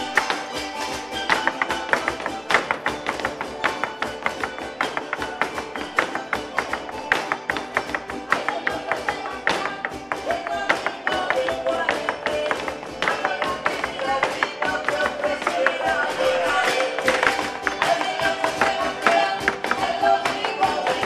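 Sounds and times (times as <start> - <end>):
strummed string instrument: 0.0 - 21.0.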